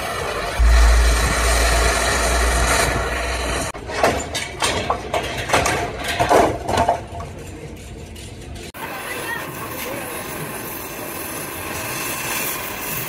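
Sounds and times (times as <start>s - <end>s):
low rumble with hiss: 0.6s - 3.7s
metal clanks and bangs: 0.6s - 8.4s.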